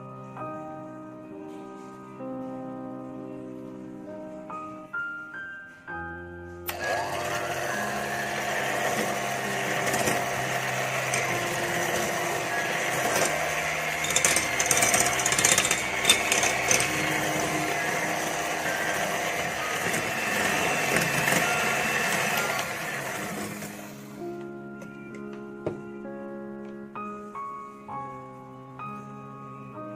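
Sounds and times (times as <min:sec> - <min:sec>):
soft piano music: 0:00.0 - 0:29.9
electric hand mixer whining: 0:06.7 - 0:24.9
beaters rattling against bowl: 0:11.1 - 0:18.4.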